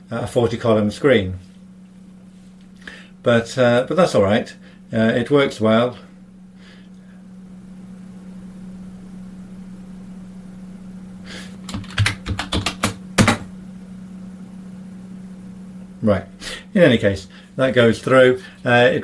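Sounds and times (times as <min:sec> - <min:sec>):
steady low hum: 0:00.0 - 0:19.0
keyboard keys clicking: 0:11.6 - 0:13.5.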